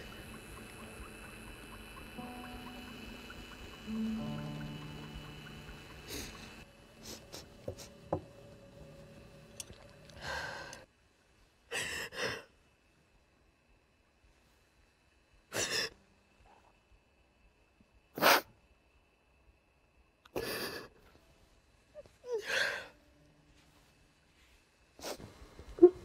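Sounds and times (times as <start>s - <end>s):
soft music: 0.0s - 10.9s.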